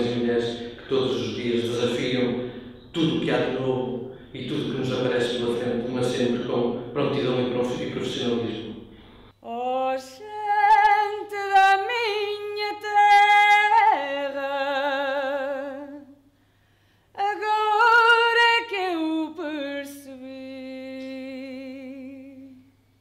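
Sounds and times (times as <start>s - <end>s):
woman singing unaccompanied: 9.4s - 16.2s, 17.2s - 22.6s.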